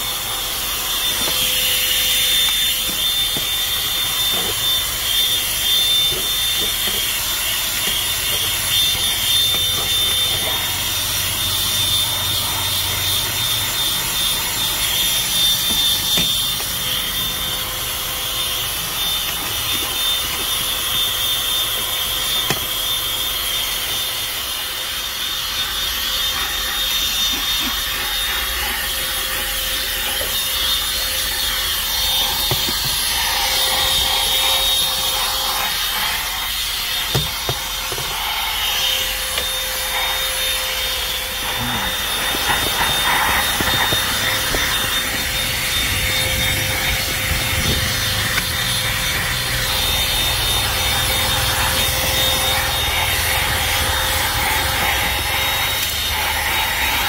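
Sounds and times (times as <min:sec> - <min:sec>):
handheld vacuum whining: 0:00.0 - 0:57.0
nozzle scraping over carpet: 0:26.4 - 0:55.9.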